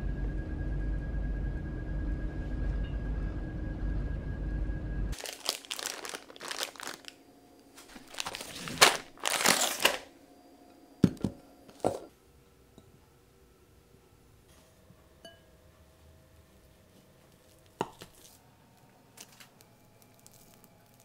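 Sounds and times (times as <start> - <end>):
plastic packets crinkling: 5.2 - 7.2, 7.8 - 10.1, 19.1 - 21.0.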